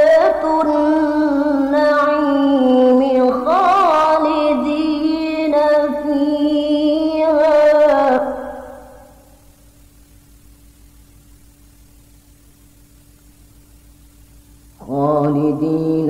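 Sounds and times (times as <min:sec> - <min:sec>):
man reciting in melismatic chant: 0:14.8 - 0:16.0.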